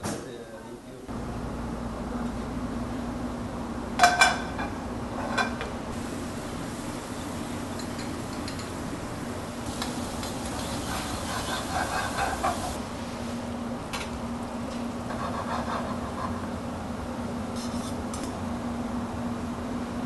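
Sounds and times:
steady hum: 0.9s - 20.0s
metal utensils clanking on pans: 9.7s - 12.8s.

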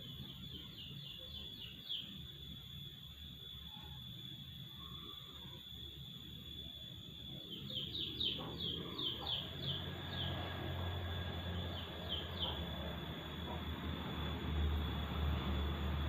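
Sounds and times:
small bird chirping: 0.0s - 2.7s, 3.6s - 13.6s
faint high whine: 0.0s - 16.0s.

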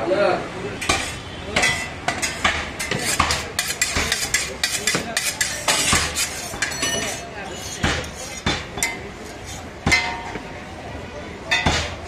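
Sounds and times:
cleaver chopping meat on wood: 0.8s - 6.3s, 7.8s - 9.0s
cleaver metallic clinks: 6.6s - 7.3s.

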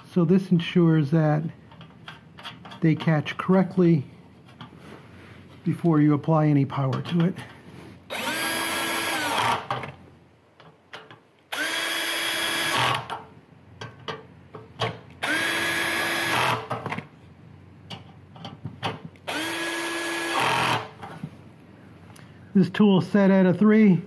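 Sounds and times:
cordless drill whine: 8.1s - 9.8s, 11.5s - 13.1s, 15.2s - 16.7s, 19.3s - 21.2s.

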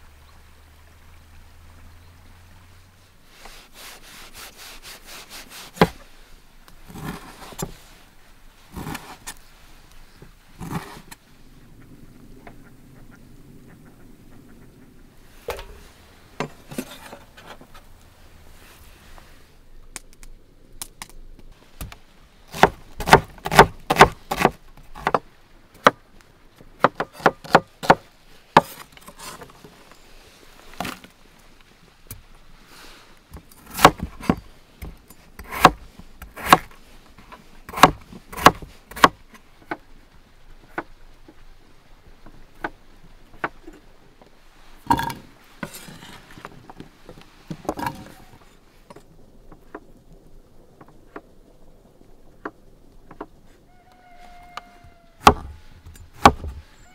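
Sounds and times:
knife chopping on wooden board: 22.6s - 25.2s, 55.2s - 55.5s.

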